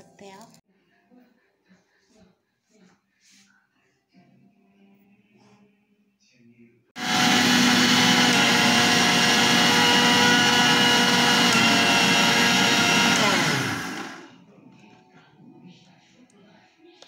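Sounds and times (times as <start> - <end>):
mixer grinder whining: 7.0 - 14.4.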